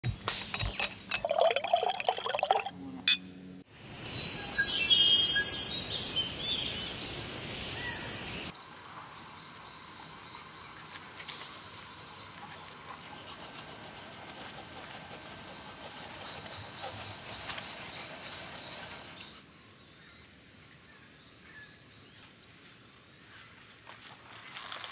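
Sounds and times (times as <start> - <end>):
birds chirping and trilling: 4.2 - 22.2.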